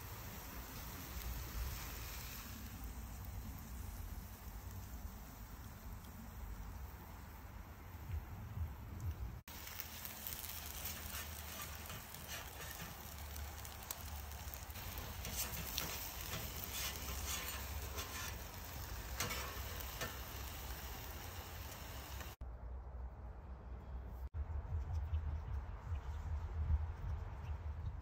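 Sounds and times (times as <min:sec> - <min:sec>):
fish sizzling on a grill: 0:00.0 - 0:08.0, 0:09.4 - 0:22.4.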